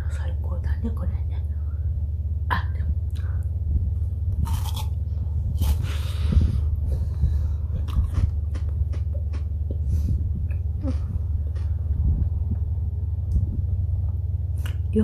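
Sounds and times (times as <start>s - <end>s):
steady low hum: 0.0s - 15.0s
teeth crunching frozen yogurt: 4.4s - 6.0s, 7.8s - 9.8s.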